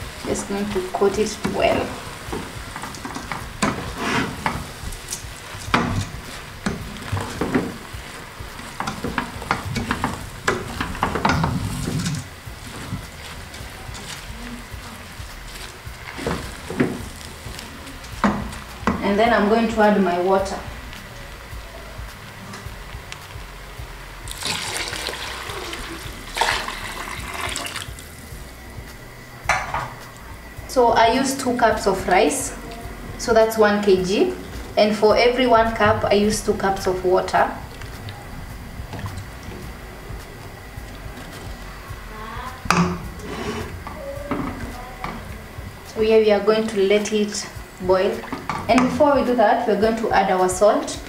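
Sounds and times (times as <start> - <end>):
paste sizzling: 0.0 - 51.0
wooden spoon scraping pot: 0.3 - 19.0, 42.8 - 44.6
boiling water pouring into pot: 24.3 - 28.3.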